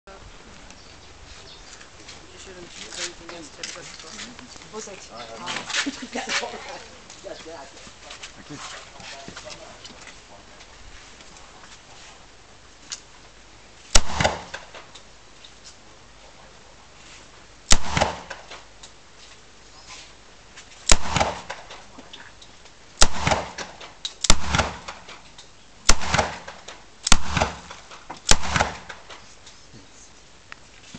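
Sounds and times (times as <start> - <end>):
pistol shots with echo: 14.0 - 14.6, 17.7 - 18.5, 20.9 - 21.7, 23.0 - 25.0, 25.8 - 29.0.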